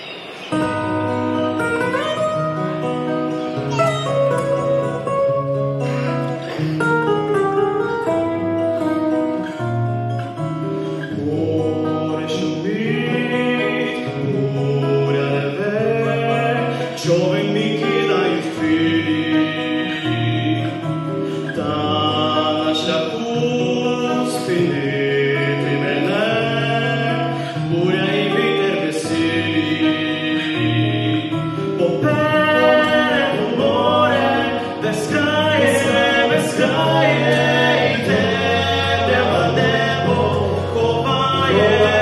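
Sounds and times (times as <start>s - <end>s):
guitar: 0.0s - 42.0s
men singing gospel: 11.0s - 42.0s.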